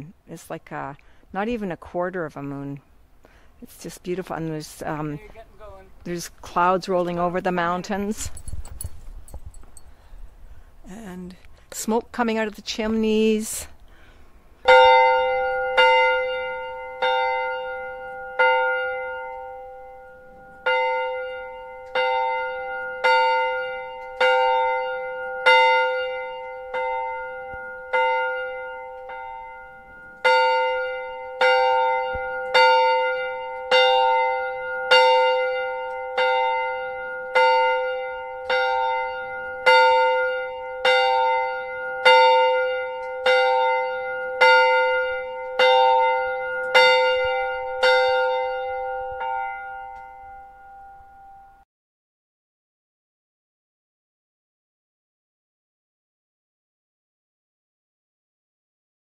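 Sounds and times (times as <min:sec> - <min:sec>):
church bell ringing: 0:14.6 - 0:51.6.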